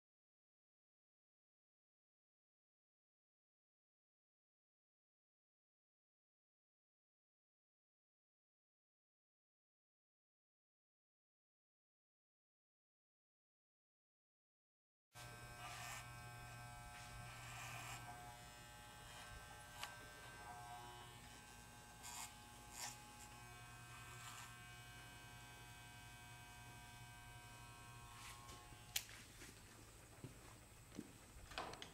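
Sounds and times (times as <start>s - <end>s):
electric clippers buzzing: 15.2s - 29.5s.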